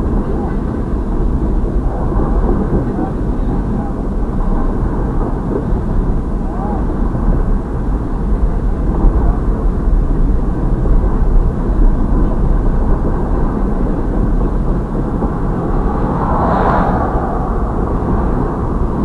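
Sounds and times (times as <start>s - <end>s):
freight train rumbling past: 12.9s - 19.0s.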